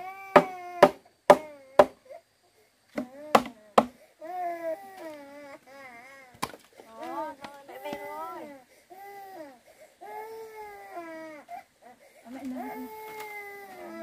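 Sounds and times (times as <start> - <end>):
baby crying and whimpering: 4.2 - 6.4, 7.7 - 14.0.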